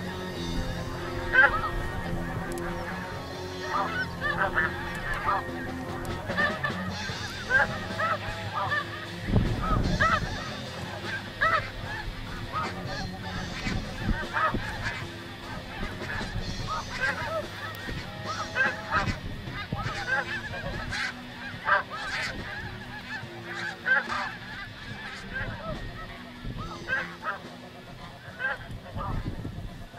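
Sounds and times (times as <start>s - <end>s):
snow geese honking: 0.0s - 29.9s
gusty wind on microphone: 9.2s - 18.3s, 18.9s - 20.9s, 28.6s - 29.9s.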